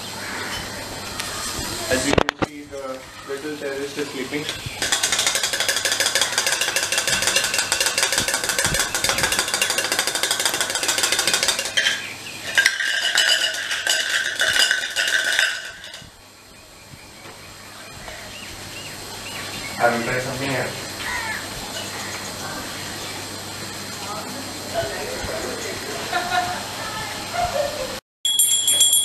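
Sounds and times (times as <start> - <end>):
plastic baby rattle shaken: 4.8 - 11.9.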